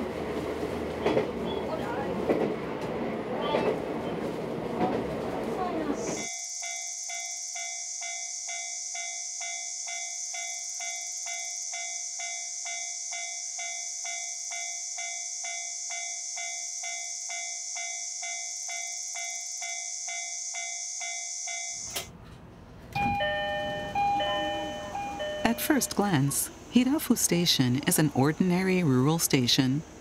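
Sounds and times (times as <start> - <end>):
train rumble: 0.0 - 6.3, 21.9 - 30.0
level crossing warning bell: 6.2 - 22.0, 23.0 - 29.6
high steady hiss: 24.9 - 30.0.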